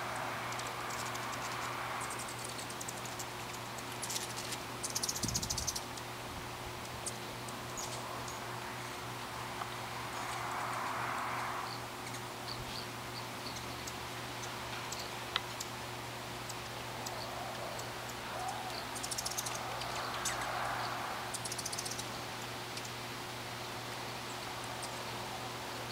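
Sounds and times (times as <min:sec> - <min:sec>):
hummingbird chip notes: 0:00.0 - 0:06.2, 0:12.0 - 0:25.2
hummingbird chattering trills: 0:00.1 - 0:06.1, 0:06.8 - 0:09.1, 0:11.7 - 0:23.0
whirr of wings: 0:16.4 - 0:23.0.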